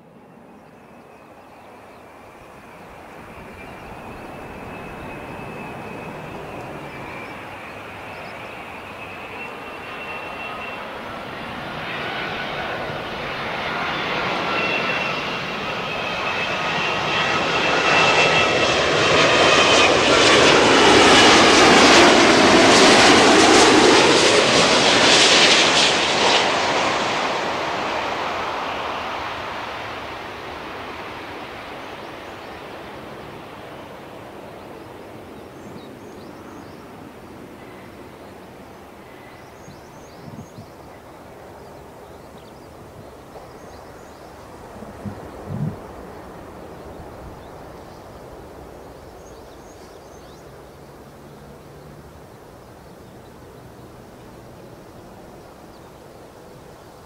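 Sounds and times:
airliner jet rush passing overhead: 0.0s - 57.0s
jet engine whine: 0.0s - 57.0s.

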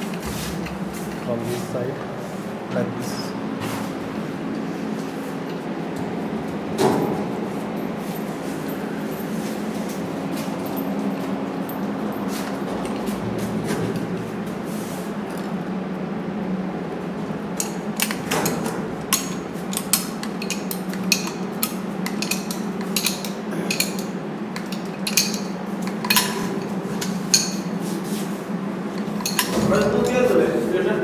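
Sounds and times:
steady low hum: 0.0s - 31.0s
tool clinking on metal: 17.6s - 27.7s, 29.0s - 30.2s.

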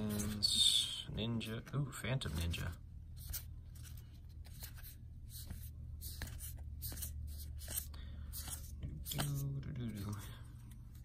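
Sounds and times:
cards sliding papery swishes: 3.2s - 11.0s.

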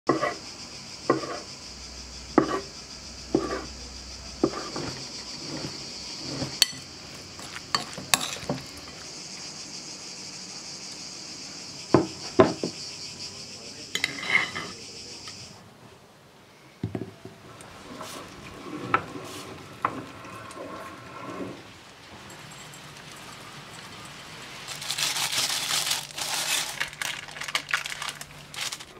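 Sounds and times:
high insect drone: 0.1s - 15.7s, 17.6s - 28.9s
utensils clinking: 4.4s - 9.0s, 14.0s - 15.4s.

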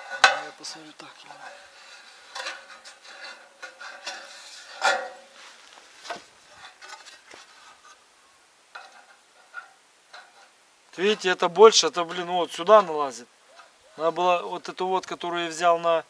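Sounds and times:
sheet metal scraping: 0.0s - 8.0s, 8.7s - 11.4s.

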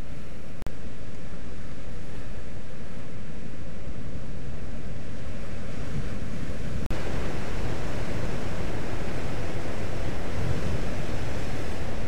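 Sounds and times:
wind rumbling on microphone: 0.0s - 12.0s
surf rushing against rocks: 4.7s - 12.0s.

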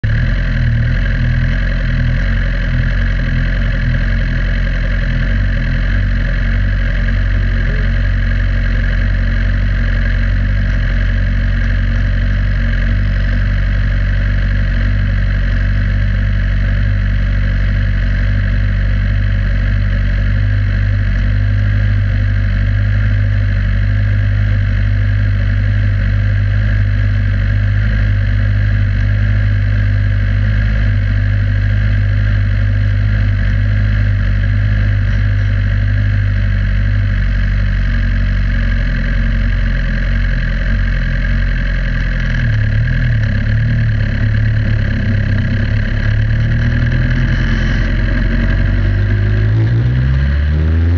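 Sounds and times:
race car engine idling: 0.0s - 50.9s.

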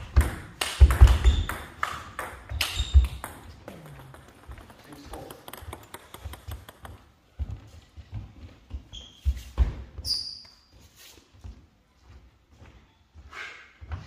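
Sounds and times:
shoe squeaks: 2.7s - 3.1s, 8.7s - 11.3s
footsteps on wooden floor: 7.2s - 10.0s.

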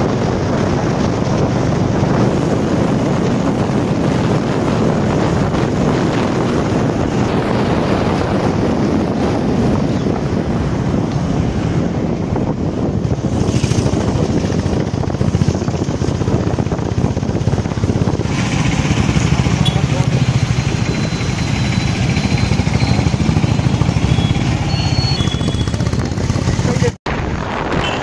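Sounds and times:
wind buffeting microphone: 0.0s - 28.0s
motorcycle engine running: 12.3s - 27.0s.

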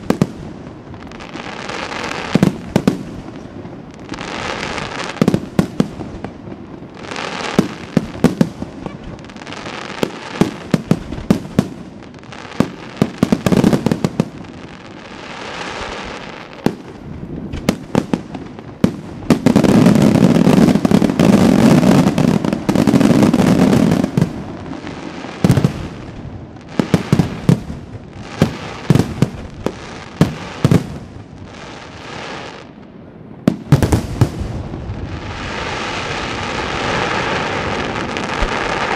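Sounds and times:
fireworks crackling: 0.0s - 38.9s.

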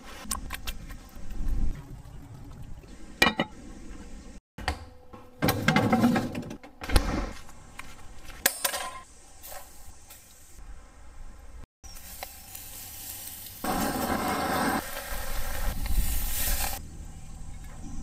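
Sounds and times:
cookware clinking and bumping: 3.2s - 3.6s.

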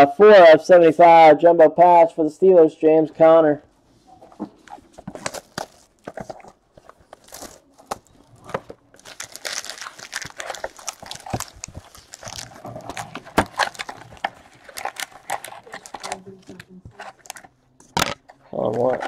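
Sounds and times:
card packs crinkling and rustling: 4.2s - 19.0s.

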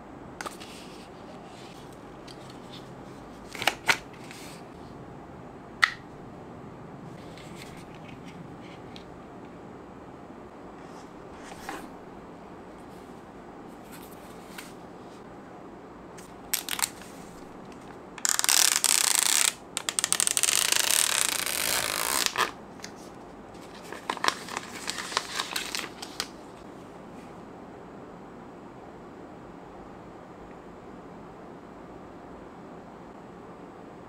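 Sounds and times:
plastic film peeling: 16.2s - 22.6s, 23.7s - 26.3s
film crinkling: 16.4s - 22.5s.

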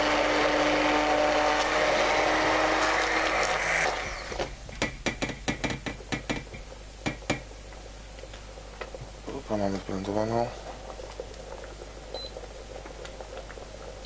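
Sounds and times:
electric blender motor humming: 0.0s - 4.4s
sharp clicks and knocks: 4.4s - 7.5s.

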